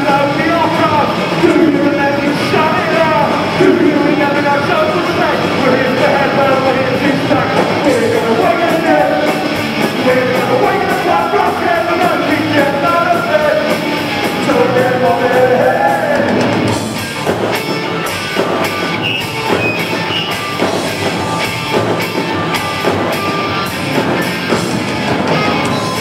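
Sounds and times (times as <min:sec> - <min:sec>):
singer shouting into microphone: 0:00.0 - 0:16.4
punk band playing live: 0:00.0 - 0:26.0.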